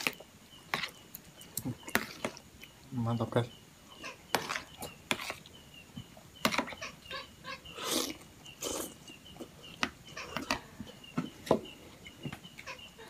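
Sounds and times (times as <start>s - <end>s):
wet chewing: 0.0s - 2.8s
slurping: 0.8s - 2.8s, 7.7s - 9.2s.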